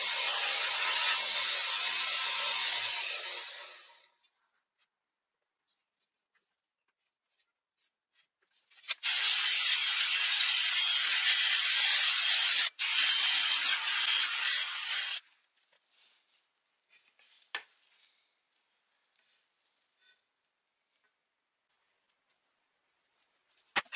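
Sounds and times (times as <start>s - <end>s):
polishing pad buffing metal blade: 8.9s - 15.2s.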